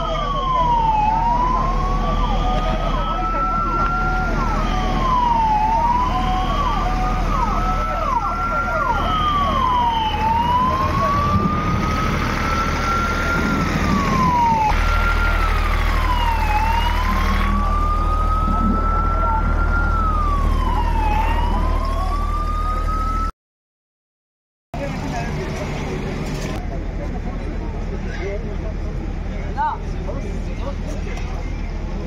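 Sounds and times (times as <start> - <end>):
ambulance siren wailing: 0.0 - 23.3
low engine hum: 0.1 - 23.3.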